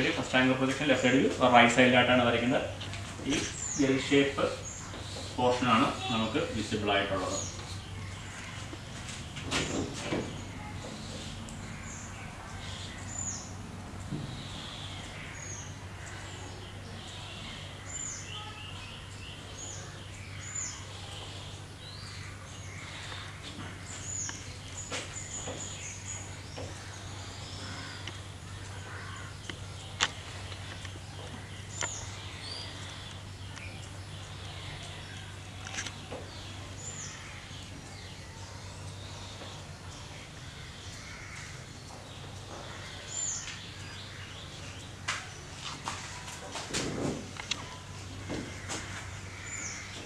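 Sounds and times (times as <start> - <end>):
small birds chirping: 0.0 - 50.0
steady low hum: 0.0 - 50.0.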